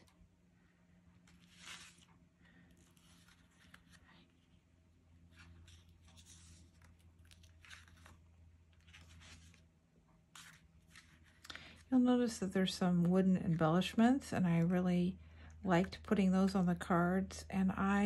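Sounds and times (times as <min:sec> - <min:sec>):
low steady hum: 0:00.0 - 0:18.0
cardstock rustling: 0:01.2 - 0:09.7, 0:10.3 - 0:11.9.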